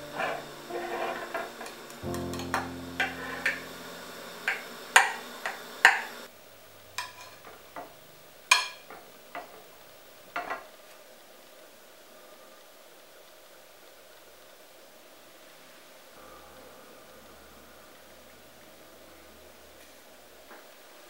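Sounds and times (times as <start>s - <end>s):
soft scrapes: 0.1s - 1.7s
utensils tapping ceramic dish: 8.5s - 9.6s.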